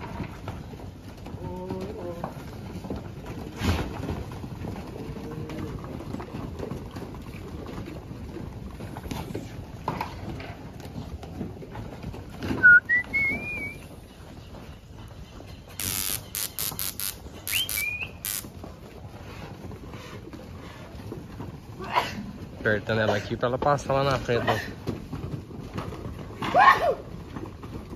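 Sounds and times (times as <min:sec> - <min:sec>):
outdoor background noise: 0:00.0 - 0:27.9
sharp high clicks: 0:15.8 - 0:18.5
wavering rising whistles: 0:17.5 - 0:18.2.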